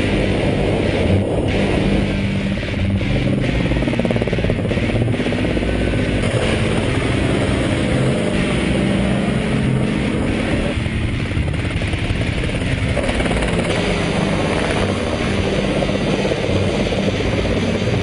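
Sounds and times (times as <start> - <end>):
helicopter flying past: 0.0 - 18.0.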